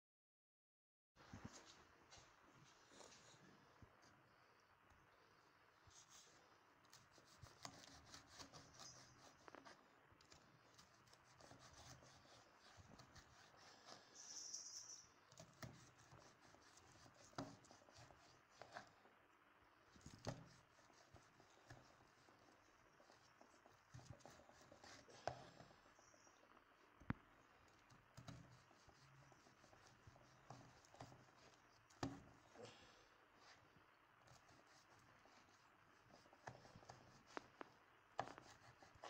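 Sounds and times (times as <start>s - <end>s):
knife scraping through dough: 6.0s - 19.0s, 20.0s - 25.8s.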